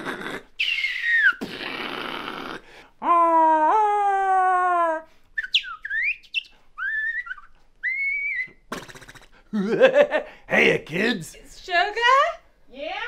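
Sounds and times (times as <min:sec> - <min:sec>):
swooping whistles: 0:05.4 - 0:08.7.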